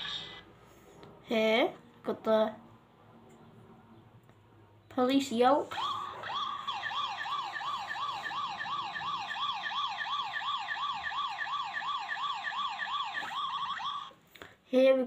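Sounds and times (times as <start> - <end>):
toy police siren yelping: 0.0 - 0.4, 5.7 - 14.2.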